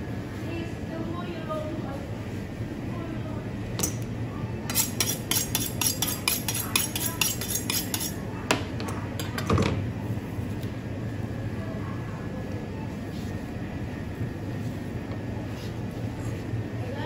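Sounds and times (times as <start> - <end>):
knife on honing steel: 4.7 - 8.2.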